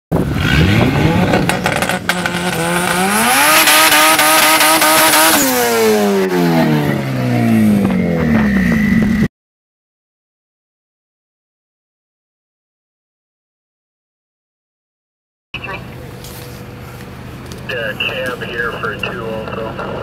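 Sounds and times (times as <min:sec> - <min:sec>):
car engine revving: 0:00.1 - 0:09.3.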